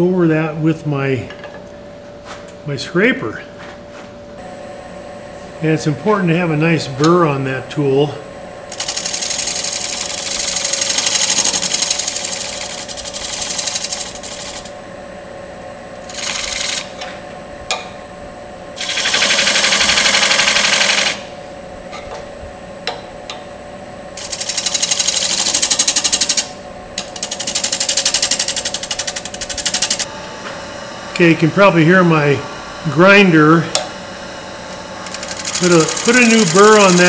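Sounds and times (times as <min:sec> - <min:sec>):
lathe humming: 0:04.4 - 0:21.7, 0:24.2 - 0:37.0
scraper rasping on spinning wood: 0:35.1 - 0:37.0.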